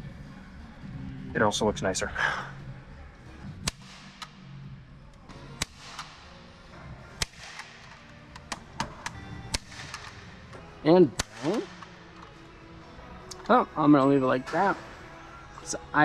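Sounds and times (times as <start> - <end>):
staple gun snapping into wood: 3.6 - 4.4, 5.6 - 6.3, 7.2 - 10.2, 11.2 - 12.3.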